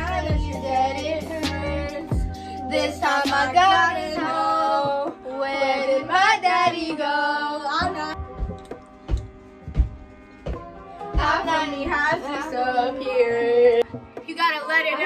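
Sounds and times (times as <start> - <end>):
woman singing with music: 0.0 - 15.0
soft knocks: 7.8 - 12.2.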